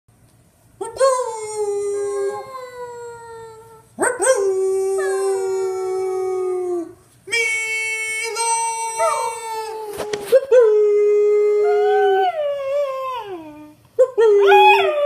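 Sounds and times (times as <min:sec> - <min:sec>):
dog howling: 0:08.7 - 0:15.0.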